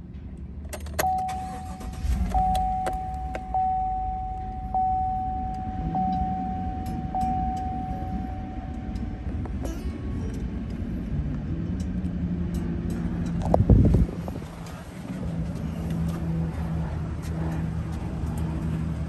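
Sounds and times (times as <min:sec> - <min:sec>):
pickup engine starting and idling: 0:00.6 - 0:12.0
warning chime dinging: 0:01.0 - 0:10.8.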